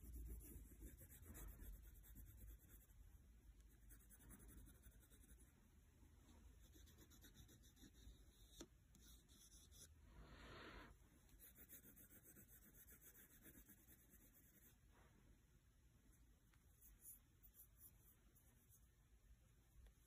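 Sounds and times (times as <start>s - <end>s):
crayon scratching on paper: 0.0s - 2.9s, 3.7s - 5.4s, 6.6s - 9.9s, 11.4s - 14.8s.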